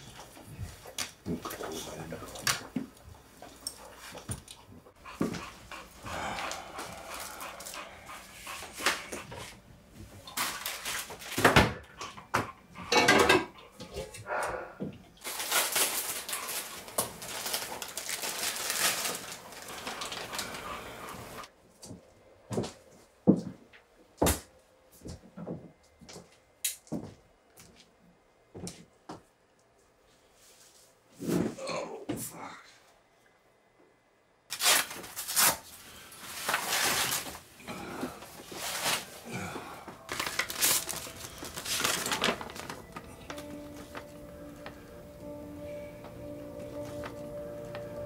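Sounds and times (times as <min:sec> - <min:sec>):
dog panting: 0:03.4 - 0:09.6, 0:19.6 - 0:21.5
handling rustling: 0:40.0 - 0:44.2.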